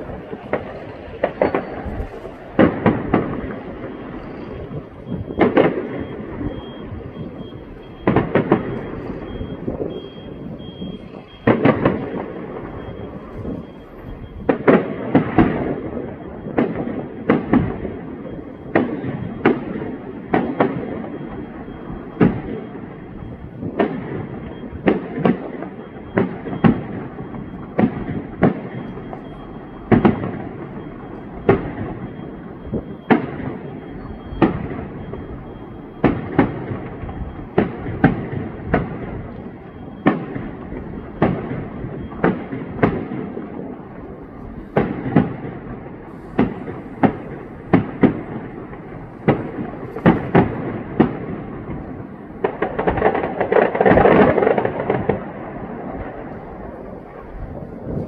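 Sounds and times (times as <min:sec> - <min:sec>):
fireworks bursting: 0:00.0 - 0:58.0.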